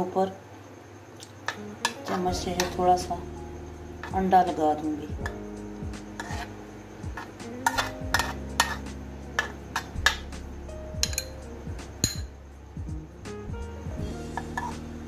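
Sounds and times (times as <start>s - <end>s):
background music: 1.4s - 15.0s
spoon clinking against bowl and tin: 7.6s - 10.2s, 11.0s - 11.4s, 12.0s - 12.3s.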